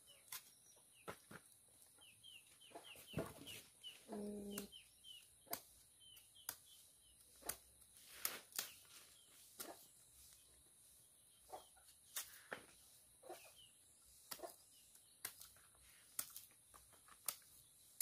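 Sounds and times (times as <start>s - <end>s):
small birds chirping: 0.0s - 18.0s
sickle chopping banana stalk: 5.4s - 9.9s, 11.9s - 18.0s.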